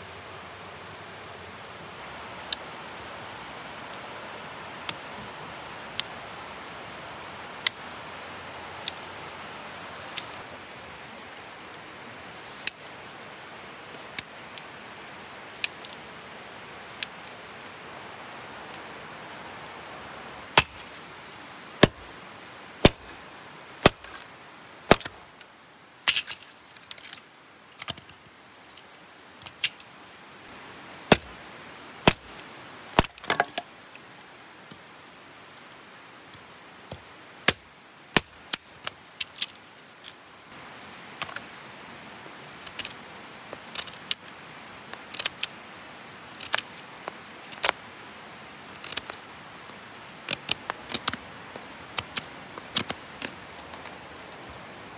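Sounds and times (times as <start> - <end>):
hatchet chopping firewood: 20.6 - 21.0, 21.8 - 22.1, 22.8 - 23.1, 23.8 - 24.2, 24.9 - 25.2, 31.1 - 31.4, 32.0 - 33.7, 36.9 - 39.5, 52.0 - 53.4.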